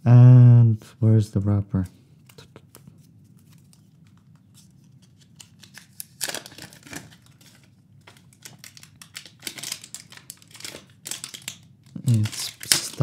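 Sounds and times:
packaging rustling: 3.0 - 13.0.

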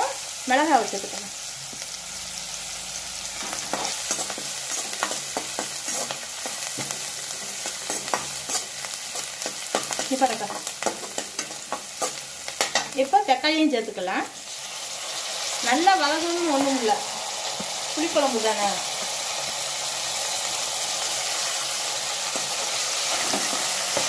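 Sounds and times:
onions sizzling in oil: 0.0 - 24.0
metal ladle scraping a pan: 3.3 - 12.9.

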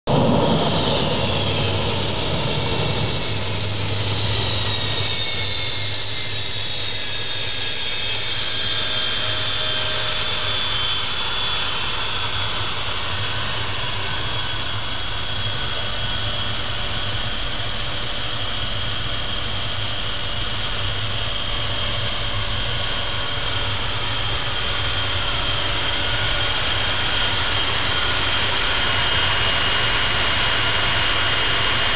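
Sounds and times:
jet engine with high whines: 0.1 - 31.9.

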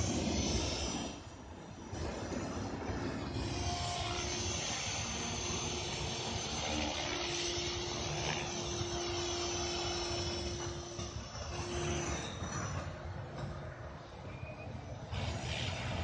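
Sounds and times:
rc helicopter motor whine: 0.0 - 2.1, 2.8 - 13.0
rotor blades whirring: 2.9 - 13.0.

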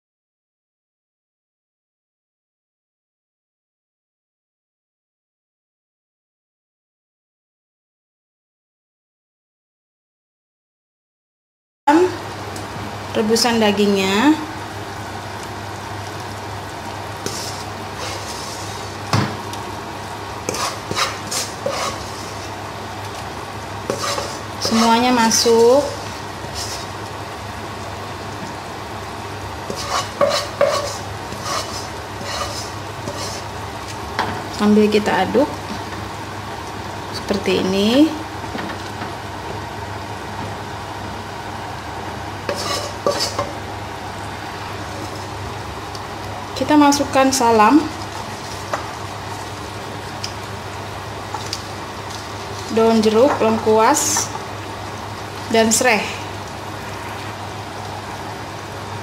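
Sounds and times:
broth boiling in a pot: 11.9 - 59.0
spatula stirring broth in pot: 17.2 - 19.0, 20.4 - 22.6, 23.8 - 25.0, 25.8 - 27.0, 29.7 - 33.5, 42.5 - 43.5.

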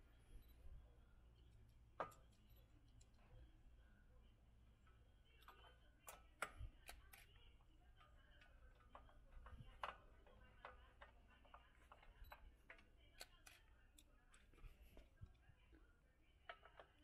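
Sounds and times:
screwdriver clicking and ticking: 5.4 - 14.7.

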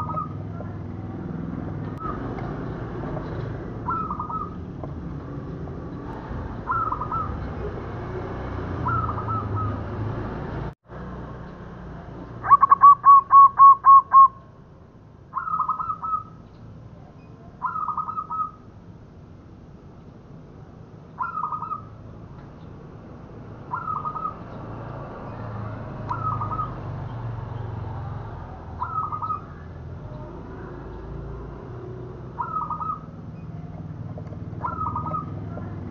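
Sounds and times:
dove cooing: 0.0 - 0.5, 3.8 - 4.9, 6.6 - 7.7, 8.8 - 9.9, 12.4 - 14.4, 28.8 - 30.9, 32.3 - 33.9, 34.5 - 35.8.

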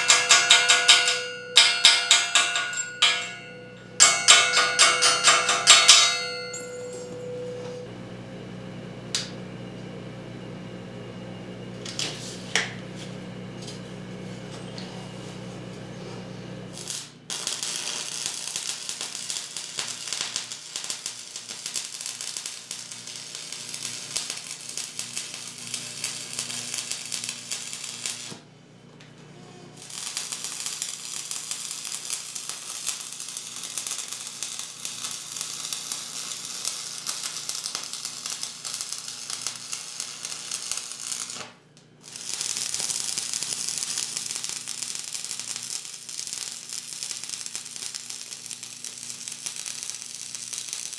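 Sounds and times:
welding arc crackling: 0.0 - 7.0, 16.6 - 28.4, 29.8 - 50.9.

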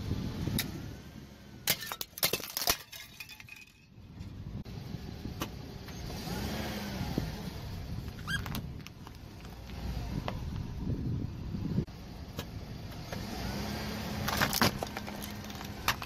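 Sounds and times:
glasses cracking under tyre: 1.7 - 3.8, 14.2 - 16.0.

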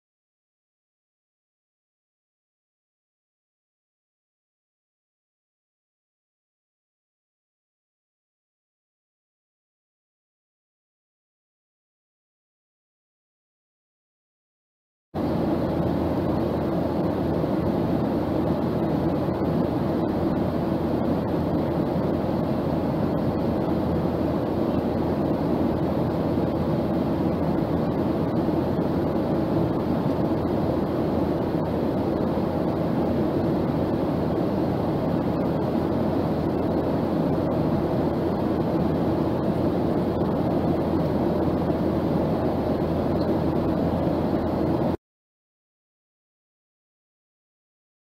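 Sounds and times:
airliner cabin noise: 15.2 - 45.0
low hum: 15.2 - 45.0.

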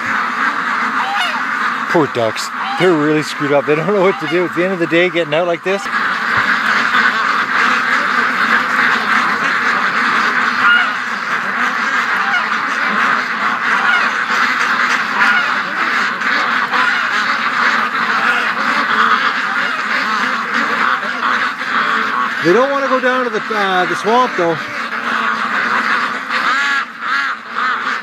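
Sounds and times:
ducks quacking: 0.0 - 28.0.

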